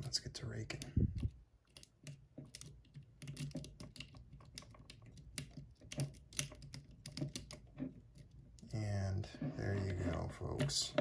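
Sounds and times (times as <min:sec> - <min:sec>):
lock pick clicking and scraping: 0:00.7 - 0:08.6.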